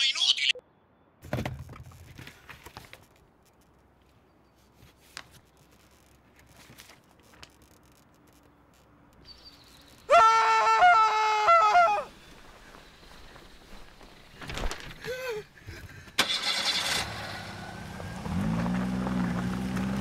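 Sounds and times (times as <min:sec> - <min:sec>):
faint paper rustling: 0:01.8 - 0:08.4.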